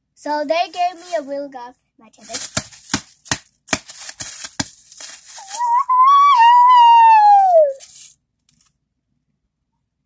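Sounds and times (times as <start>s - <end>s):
child squealing: 5.4s - 7.8s.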